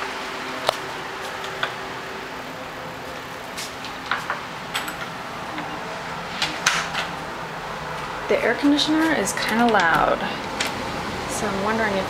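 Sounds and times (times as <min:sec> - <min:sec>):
air conditioner humming: 0:00.0 - 0:12.0.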